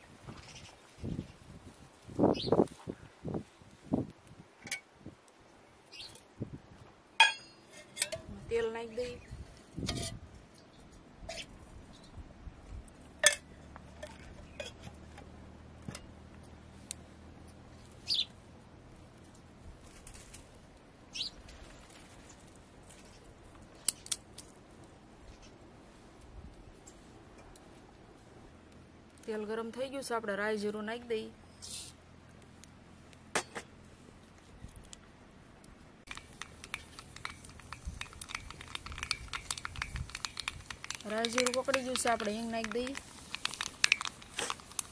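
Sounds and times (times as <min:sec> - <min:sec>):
birds chirping: 0:02.3 - 0:02.6, 0:18.0 - 0:18.3
seeds crackling in hot oil: 0:36.0 - 0:44.9.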